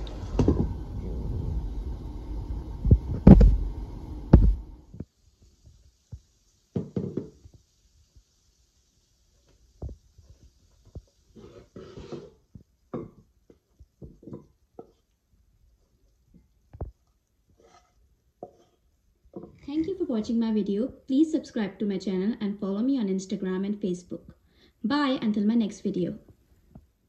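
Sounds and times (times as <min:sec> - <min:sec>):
low rumble: 0:00.0 - 0:05.0
wooden spatula scraping pan: 0:11.2 - 0:12.5, 0:17.5 - 0:20.3.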